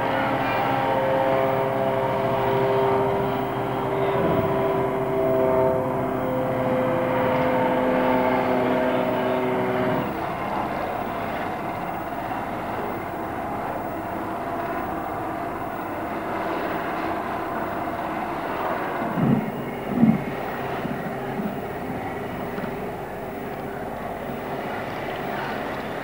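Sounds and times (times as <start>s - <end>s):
propeller aircraft engine droning: 0.0s - 26.0s
rushing noise: 1.3s - 26.0s
low thumps: 19.0s - 22.9s.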